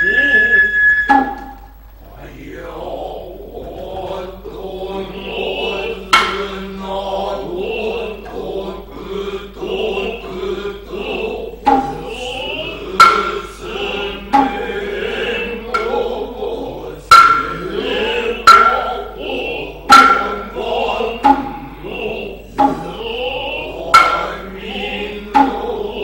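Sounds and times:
male chorus chanting: 0:00.0 - 0:26.0
hand drum strikes: 0:01.1 - 0:01.7, 0:06.1 - 0:06.5, 0:11.6 - 0:12.2, 0:13.0 - 0:13.4, 0:14.2 - 0:14.7, 0:17.1 - 0:17.7, 0:18.4 - 0:18.9, 0:19.9 - 0:20.6, 0:21.2 - 0:21.7, 0:22.6 - 0:23.0, 0:23.9 - 0:24.3, 0:25.3 - 0:25.7.

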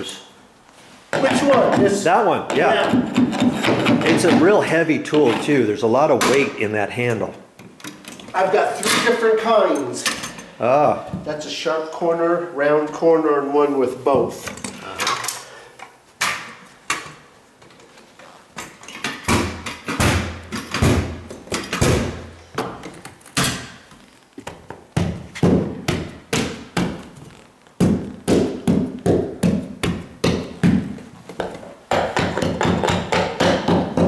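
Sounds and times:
carpet tools knocking: 0:01.2 - 0:05.4, 0:24.4 - 0:27.2, 0:27.8 - 0:34.0.

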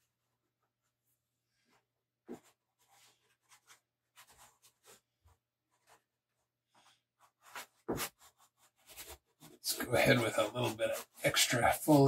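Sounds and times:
chalk scratching on paper: 0:07.2 - 0:12.0.

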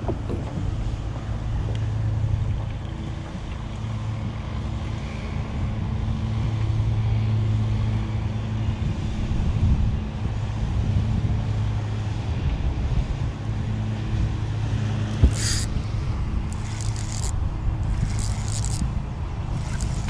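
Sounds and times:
low mechanical hum: 0:00.0 - 0:20.0
wind rumble on microphone: 0:00.0 - 0:20.0.

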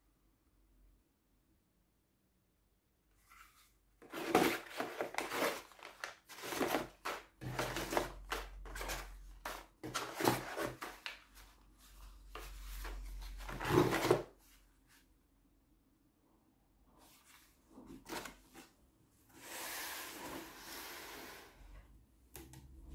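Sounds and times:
cardboard boxes rustling and knocking: 0:04.0 - 0:11.3, 0:12.4 - 0:14.4.

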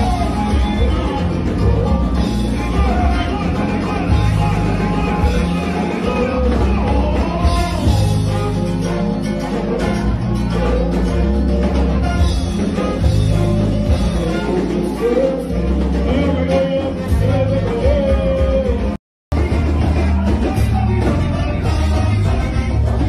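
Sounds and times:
person singing: 0:00.0 - 0:08.7, 0:13.3 - 0:23.0
live band music: 0:00.0 - 0:23.0.

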